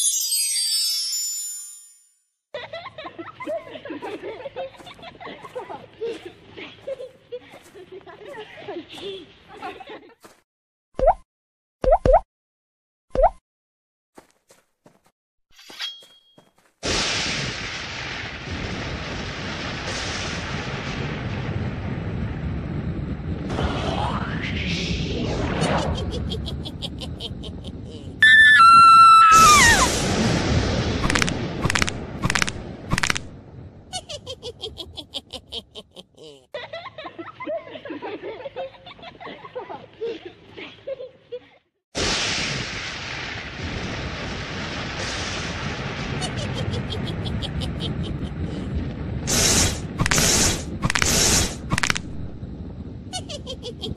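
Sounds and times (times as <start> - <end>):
high chime: 0.0 - 2.3
cartoon voices giggling: 2.6 - 10.2, 25.6 - 28.2, 33.9 - 41.6, 46.2 - 48.5, 53.1 - 53.9
thunder rumble: 16.9 - 28.2, 28.8 - 34.8, 42.0 - 53.9
cartoon lightning strike effect: 23.5 - 26.8, 28.2 - 33.2, 49.2 - 52.0.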